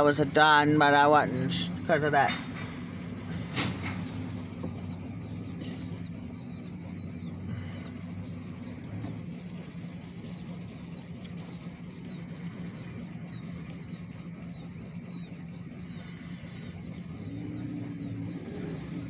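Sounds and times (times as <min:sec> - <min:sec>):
bird chirping: 0:00.0 - 0:19.0
diesel locomotive rumbling: 0:00.0 - 0:19.0.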